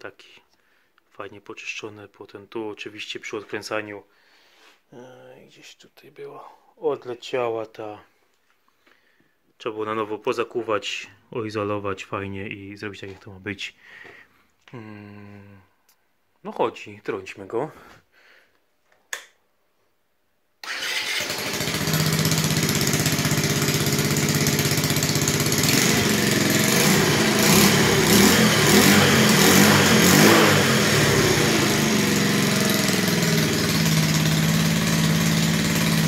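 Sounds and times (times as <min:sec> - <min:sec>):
moped engine idling and revving: 0:20.7 - 0:36.0.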